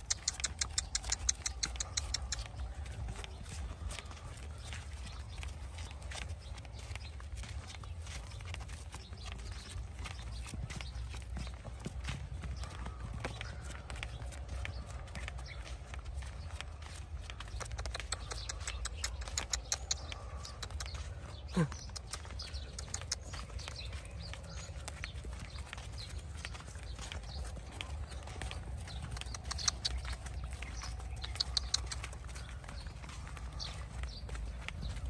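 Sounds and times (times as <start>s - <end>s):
hoof and foot steps on sand: 0.0s - 35.0s
steady low rumble: 22.4s - 35.0s.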